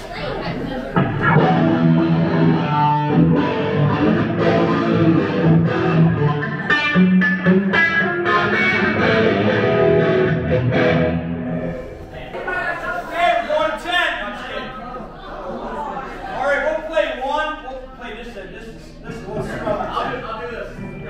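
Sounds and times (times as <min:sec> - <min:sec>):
loud electric guitar: 0:01.0 - 0:12.0.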